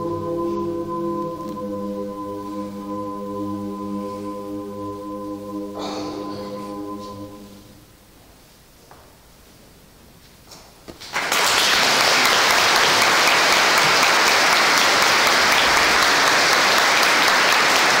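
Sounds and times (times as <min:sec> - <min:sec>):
audience applause: 0:11.0 - 0:18.0.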